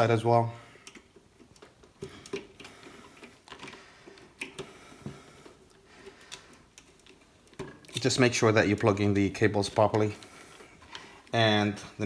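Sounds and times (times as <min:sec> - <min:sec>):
plastic cable connectors clicking: 0:00.8 - 0:04.7.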